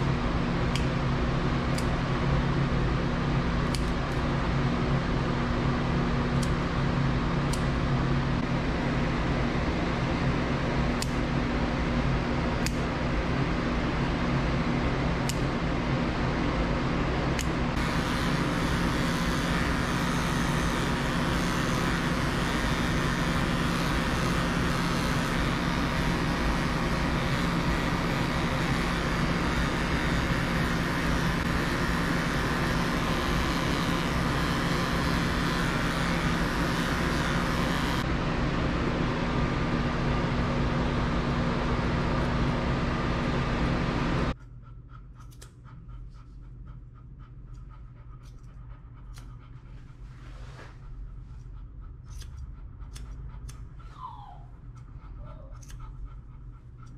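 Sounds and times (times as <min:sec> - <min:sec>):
electric clipper whirring: 0:00.0 - 0:02.2, 0:03.5 - 0:04.4, 0:06.2 - 0:16.4, 0:17.2 - 0:38.1
grooming scissors clicking: 0:00.7 - 0:01.0, 0:01.7 - 0:02.0, 0:03.6 - 0:04.2, 0:07.5 - 0:07.7, 0:10.9 - 0:11.3, 0:12.6 - 0:12.9, 0:15.2 - 0:15.5, 0:17.4 - 0:38.0, 0:44.4 - 0:45.9, 0:47.5 - 0:49.4, 0:51.4 - 0:53.8, 0:54.7 - 0:56.9.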